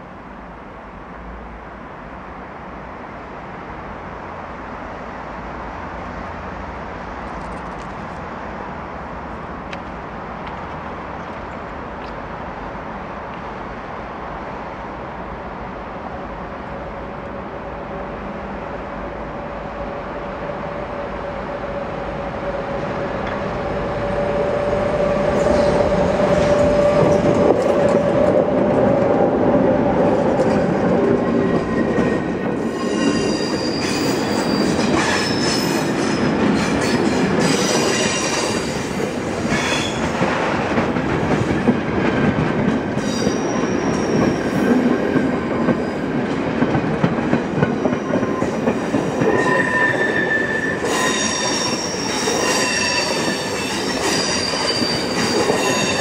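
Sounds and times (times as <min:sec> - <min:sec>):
electric locomotive whine: 0:06.0 - 0:56.0
wagon wheels clattering and squealing: 0:47.6 - 0:56.0.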